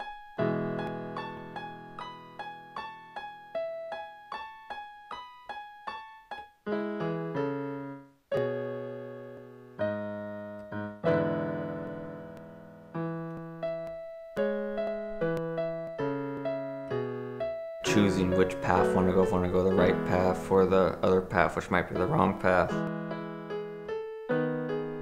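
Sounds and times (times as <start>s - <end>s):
solo piano music: 0.0s - 25.0s.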